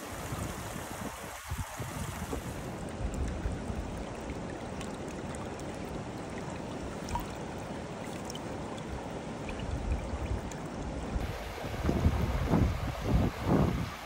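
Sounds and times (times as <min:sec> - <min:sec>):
stream running over rocks: 0:00.0 - 0:14.0.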